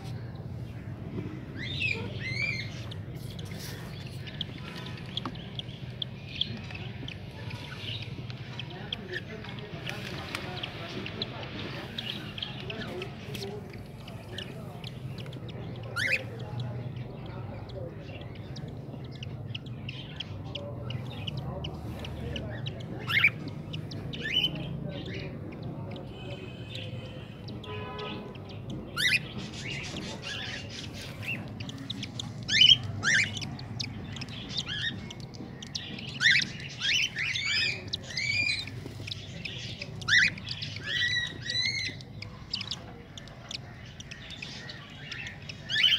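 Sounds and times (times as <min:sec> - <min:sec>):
parrots squawking: 0:26.0 - 0:45.9.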